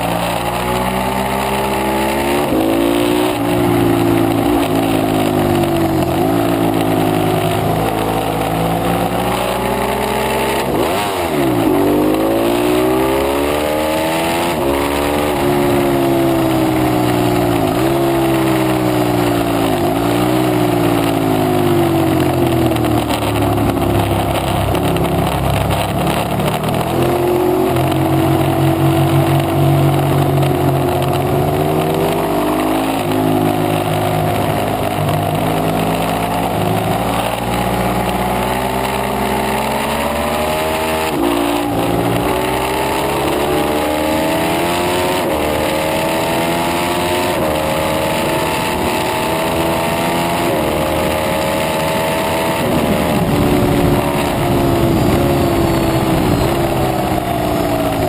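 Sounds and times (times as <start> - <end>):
motorcycle engine accelerating: 0.0 - 58.0
wind noise rushing: 52.1 - 58.0.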